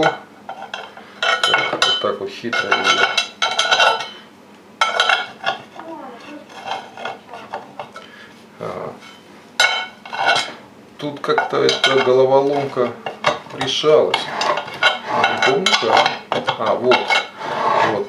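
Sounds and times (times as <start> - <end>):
cast iron clanking: 0.0 - 4.2, 4.8 - 8.1, 8.9 - 18.0
metal scrapes and clinks: 4.8 - 7.6, 9.0 - 10.6, 13.6 - 16.2.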